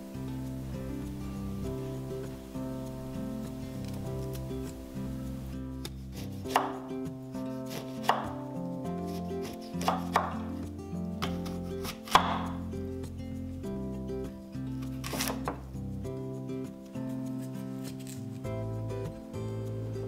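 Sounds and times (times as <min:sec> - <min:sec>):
soft background music: 0:00.0 - 0:20.0
knife slicing fruit: 0:05.8 - 0:06.9, 0:07.5 - 0:08.4, 0:09.0 - 0:10.6, 0:11.2 - 0:12.7, 0:14.8 - 0:15.6.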